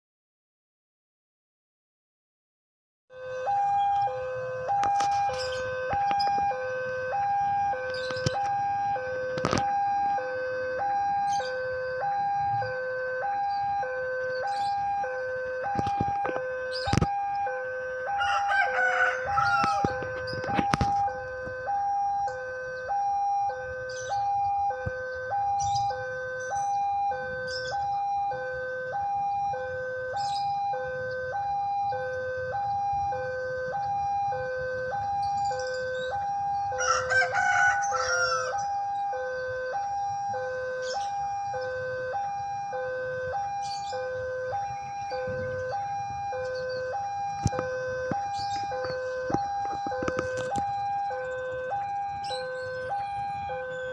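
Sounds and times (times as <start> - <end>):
level-crossing two-tone alarm: 3.1 - 53.9
rooster crowing: 18.0 - 20.1, 36.7 - 38.7.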